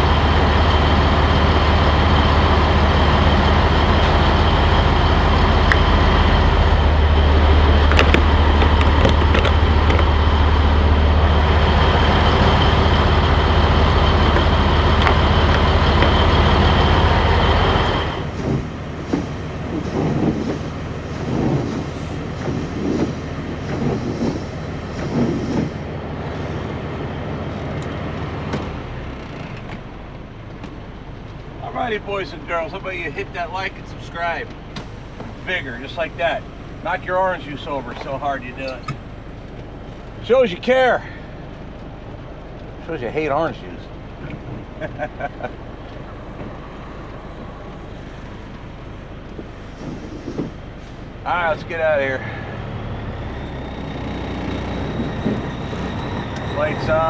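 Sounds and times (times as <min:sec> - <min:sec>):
diesel truck engine idling: 0:00.0 - 0:57.0
windshield wipers sweeping: 0:03.3 - 0:26.7, 0:44.2 - 0:51.2, 0:53.6 - 0:57.0.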